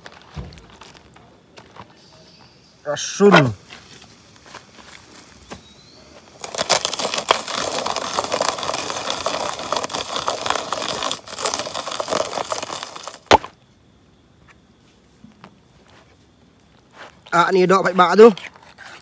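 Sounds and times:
chopper blades crunching garlic: 0:06.4 - 0:13.6.

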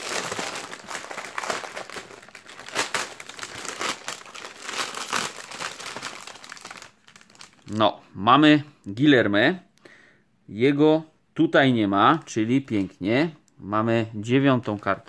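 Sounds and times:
foil wrapper crinkling: 0:00.0 - 0:07.7.

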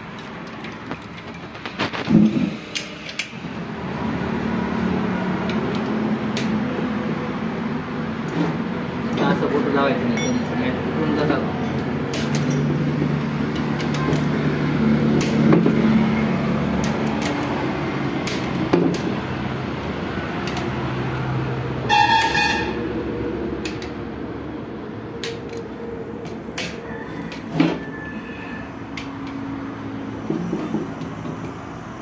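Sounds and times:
engine humming: 0:00.0 - 0:32.0
vehicle horn: 0:21.8 - 0:22.9.

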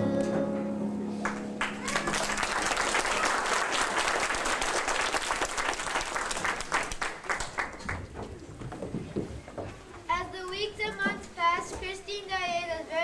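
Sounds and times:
audience applauding: 0:01.2 - 0:08.2.

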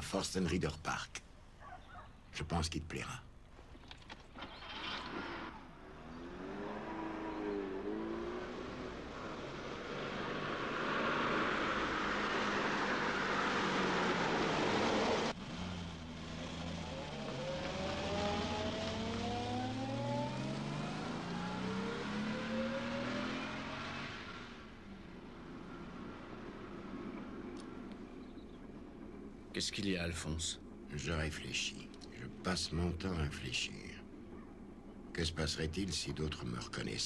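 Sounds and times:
car driving rushing noise: 0:04.4 - 0:29.4
car engine accelerating: 0:04.6 - 0:29.3.

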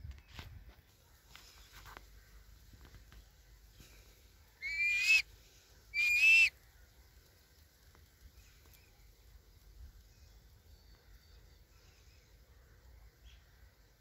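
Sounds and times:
kite whistling calls: 0:04.6 - 0:05.2, 0:06.0 - 0:06.5.

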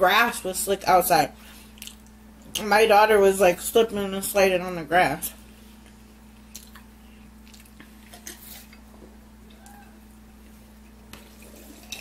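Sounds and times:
chewing smacks: 0:01.7 - 0:02.6, 0:05.8 - 0:09.9.

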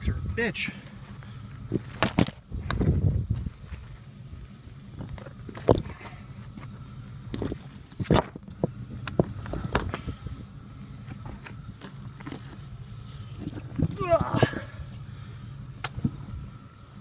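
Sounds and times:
vehicle engine idling: 0:00.0 - 0:17.0
footsteps crunching on rocky dirt: 0:00.8 - 0:10.2.

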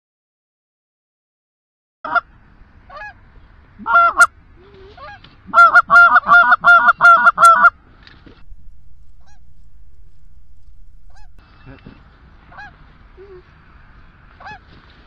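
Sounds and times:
goose honking: 0:02.9 - 0:03.2, 0:03.8 - 0:07.8, 0:09.1 - 0:11.4.

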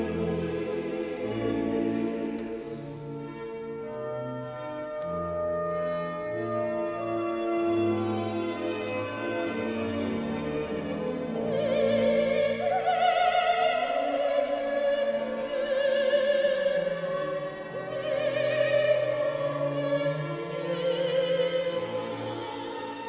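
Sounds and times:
string orchestra sustained chords: 0:00.0 - 0:23.0
soprano singing with vibrato: 0:11.4 - 0:23.0.

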